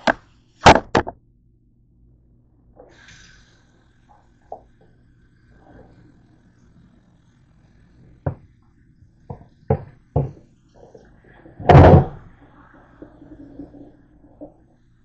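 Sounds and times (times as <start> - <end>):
frying pan knocking on steel sink: 9.3 - 10.4.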